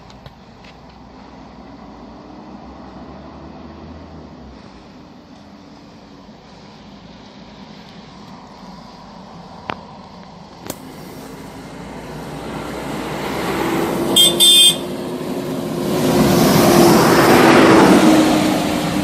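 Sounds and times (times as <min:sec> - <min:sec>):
bus engine and road noise: 0:00.0 - 0:19.0
bus horn toots: 0:14.1 - 0:15.0.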